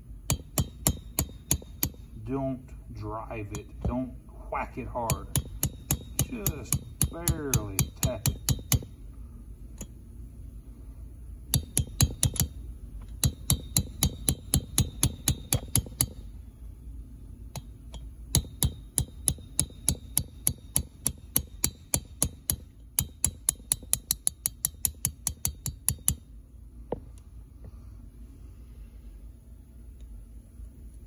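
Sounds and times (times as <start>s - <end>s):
hammer tapping metal drift: 0.2s - 2.4s, 3.4s - 9.0s, 9.8s - 10.0s, 11.5s - 16.3s, 17.5s - 26.3s.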